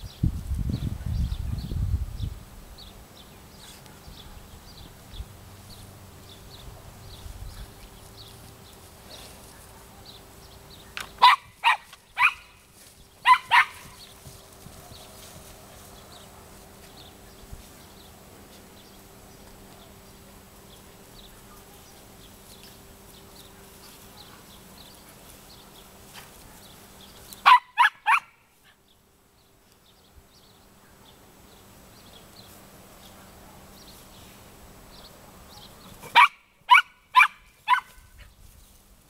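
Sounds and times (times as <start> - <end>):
dog barking sharply: 11.2 - 12.6, 13.2 - 13.9, 27.4 - 28.4, 36.0 - 37.9.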